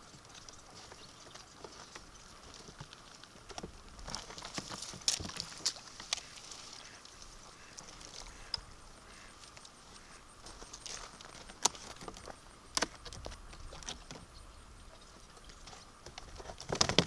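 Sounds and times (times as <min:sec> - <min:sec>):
tapping and scrabbling in box: 0:01.6 - 0:06.2, 0:15.7 - 0:17.0.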